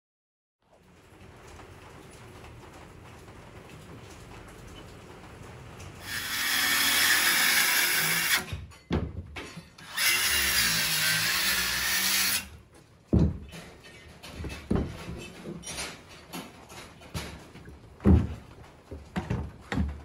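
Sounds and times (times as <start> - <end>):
circular saw cutting wood: 6.0 - 8.5, 9.8 - 12.5
sharp wooden knocks: 13.1 - 13.8, 14.4 - 15.2, 18.0 - 20.0.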